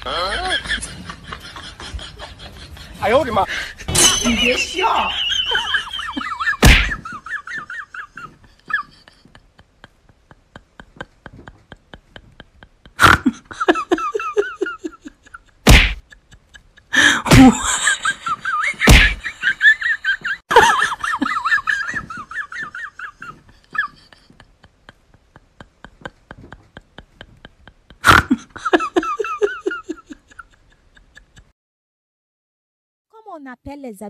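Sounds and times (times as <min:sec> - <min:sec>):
loud sharp whacks: 0:06.6 - 0:07.0, 0:15.7 - 0:16.0, 0:18.8 - 0:19.2.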